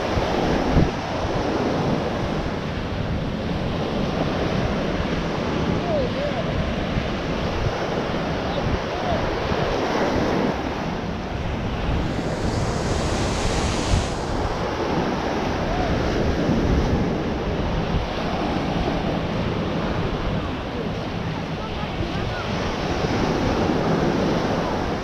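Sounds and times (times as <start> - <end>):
ocean waves breaking on sand: 0.0 - 25.0
wind buffeting microphone: 0.0 - 25.0.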